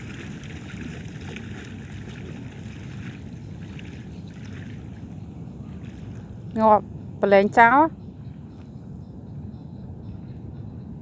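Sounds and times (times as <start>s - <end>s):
wading splashes in seawater: 0.0s - 6.3s
wind rumble on microphone: 0.0s - 11.0s.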